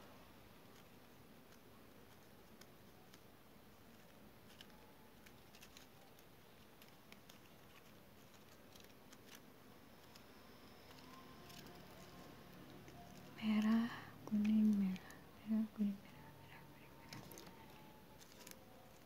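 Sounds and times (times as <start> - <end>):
paper strips crinkling: 0.6 - 19.0.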